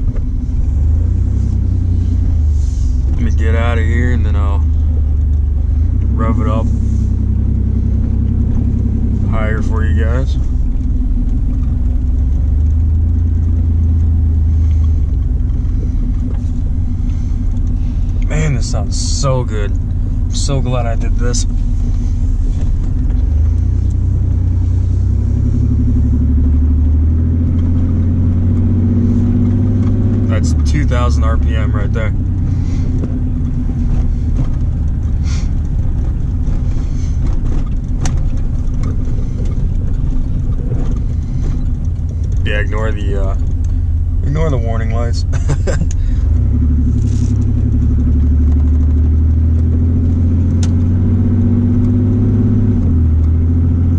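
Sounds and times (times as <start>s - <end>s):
loud exhaust drone: 0.0s - 11.3s, 13.7s - 38.2s.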